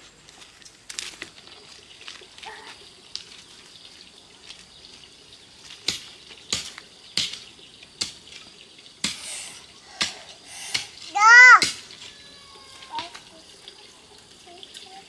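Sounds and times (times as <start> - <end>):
running water rush: 0.0 - 15.0.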